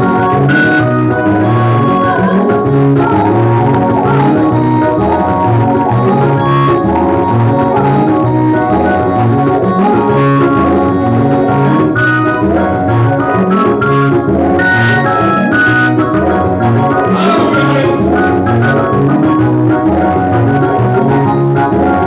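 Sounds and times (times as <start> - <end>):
sustained chords: 16.8 - 19.0
repeating bass beat: 17.0 - 18.6.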